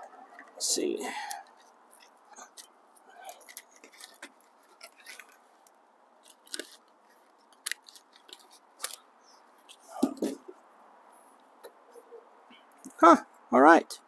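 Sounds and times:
plastic packaging crinkling: 0:01.4 - 0:09.8.

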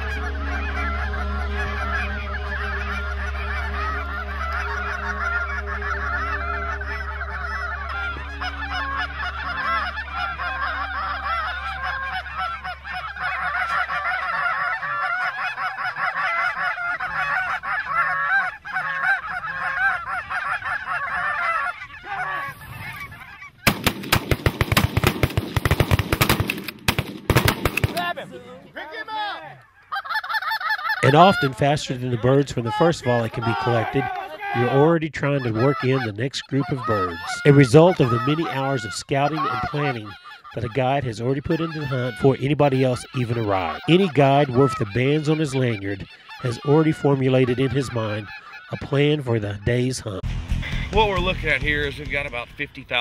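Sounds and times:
flock of geese honking: 0:00.0 - 0:26.7, 0:27.3 - 0:50.2
shotgun blasts: 0:23.7 - 0:28.1.

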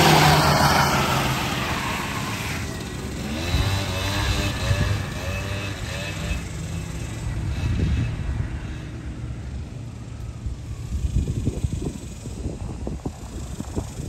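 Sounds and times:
mini atv engine revving: 0:00.0 - 0:09.6.

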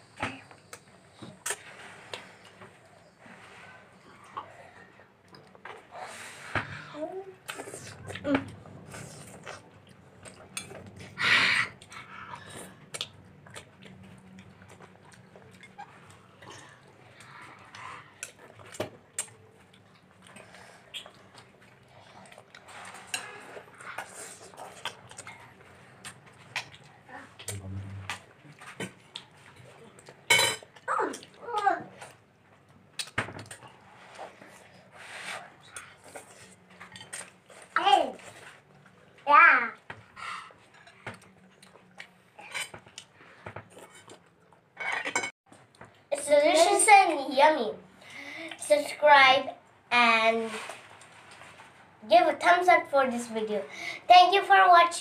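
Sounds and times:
chewing with clicks and smacks: 0:05.2 - 0:05.9, 0:07.4 - 0:11.2, 0:11.8 - 0:34.6, 0:35.6 - 0:39.2, 0:39.8 - 0:44.6
cutlery clinking on dishes: 0:30.3 - 0:30.7, 0:44.8 - 0:45.3.

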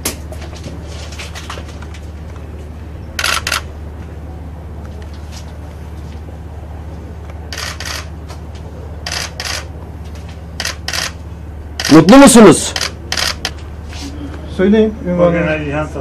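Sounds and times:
steady low hum: 0:00.0 - 0:16.0
camera shutter double clicks: 0:03.2 - 0:03.7, 0:07.5 - 0:08.1, 0:09.1 - 0:09.7, 0:10.6 - 0:11.2, 0:11.8 - 0:12.1, 0:12.7 - 0:13.5.

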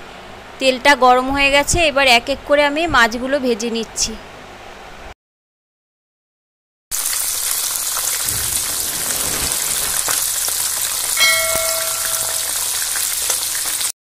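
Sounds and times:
fish sizzling in hot oil: 0:06.9 - 0:14.0
bell-like chime: 0:11.2 - 0:12.6.

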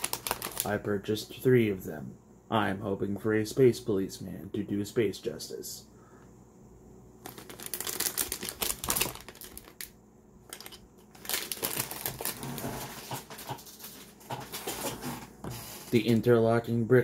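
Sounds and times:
plastic bags crinkling: 0:00.0 - 0:00.8, 0:07.2 - 0:15.0.

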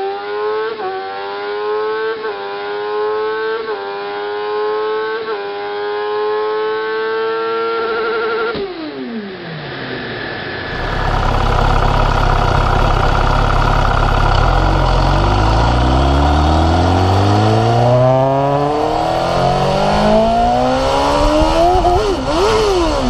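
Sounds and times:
motorcycle engine accelerating: 0:00.0 - 0:09.4, 0:10.0 - 0:23.0
wind noise: 0:17.1 - 0:23.0.

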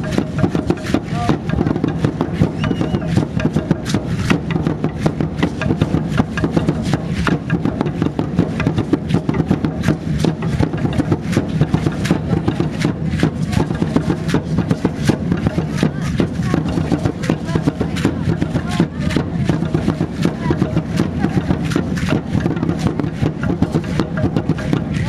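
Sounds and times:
dance drumming: 0:00.0 - 0:25.0
seed-pod ankle rattles clattering: 0:00.0 - 0:25.0.

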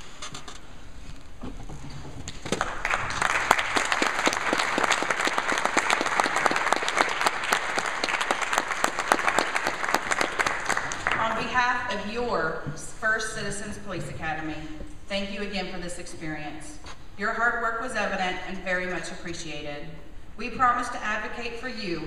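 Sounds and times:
crowd clapping: 0:02.3 - 0:11.4.

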